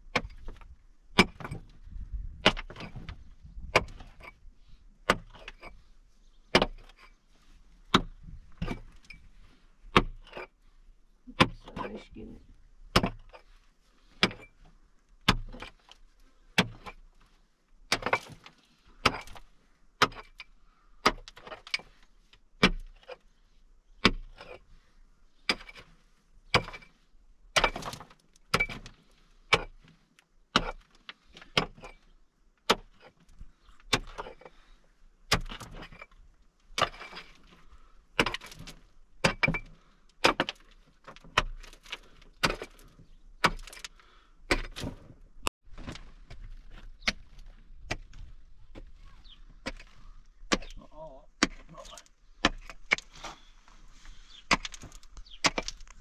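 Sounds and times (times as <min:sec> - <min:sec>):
pick striking earth wall: 0:00.0 - 0:04.4, 0:05.0 - 0:07.1, 0:07.8 - 0:09.2, 0:09.8 - 0:10.5, 0:11.3 - 0:17.1, 0:17.8 - 0:22.0, 0:22.6 - 0:23.2, 0:24.0 - 0:24.6, 0:25.4 - 0:29.8, 0:30.5 - 0:34.6, 0:35.3 - 0:36.1, 0:36.7 - 0:56.0.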